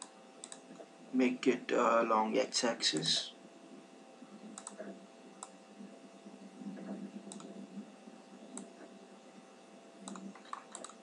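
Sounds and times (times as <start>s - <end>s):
computer mouse clicks: 0.0s - 0.9s, 4.5s - 5.6s, 6.7s - 7.6s, 8.5s - 8.9s, 10.0s - 11.0s
faint steady hum: 0.0s - 11.0s.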